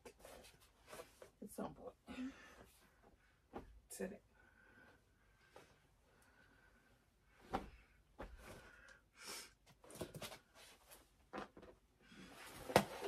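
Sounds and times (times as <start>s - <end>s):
clothes rustling: 0.0s - 1.5s, 2.4s - 4.0s, 7.2s - 9.0s.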